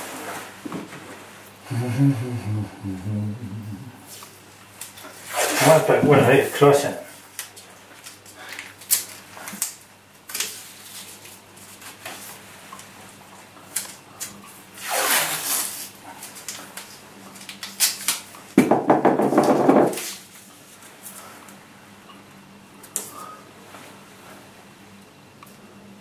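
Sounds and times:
tape handling clicks and rustles: 7.3 - 12.9, 16.2 - 18.4
tape pulled with rasp: 14.8 - 15.9.

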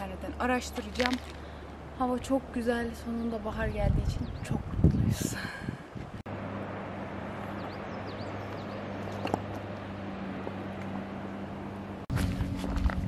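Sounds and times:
footsteps on gravel: 0.6 - 1.4, 12.1 - 13.0
low hum: 4.0 - 13.0.

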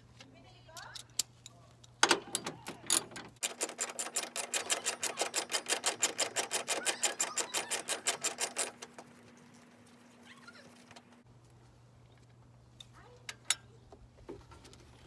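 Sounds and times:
ratchet wrench clicking: 2.3 - 8.8.

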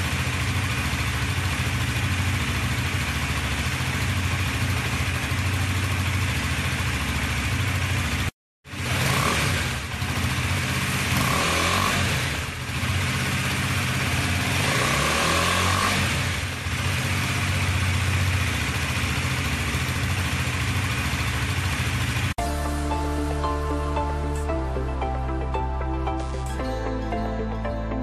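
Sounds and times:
motorcycle engine revving: 0.0 - 22.9
electronic music: 22.4 - 28.0.

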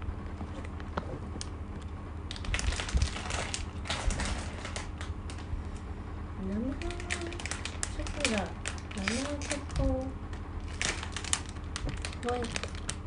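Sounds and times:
plastic packaging crinkling: 2.3 - 5.4, 6.7 - 13.0.

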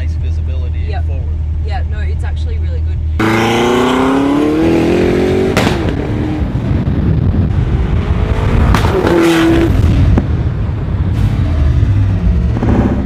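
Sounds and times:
car engine revving: 3.2 - 13.0.

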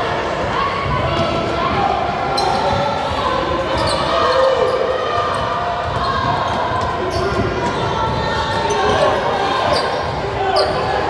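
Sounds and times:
voices echoing in hall: 0.0 - 11.0
basketball bouncing on gym floor: 5.2 - 9.1.

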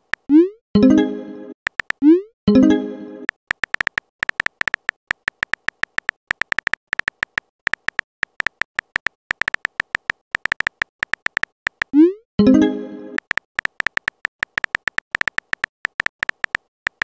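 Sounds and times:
phone keyboard typing clicks: 1.7 - 2.1, 3.2 - 12.0, 13.1 - 17.0.

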